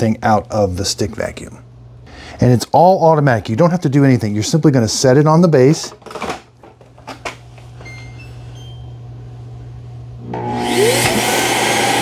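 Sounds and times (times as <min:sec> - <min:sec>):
low steady hum: 0:00.0 - 0:10.6
vacuum motor whining: 0:10.2 - 0:12.0.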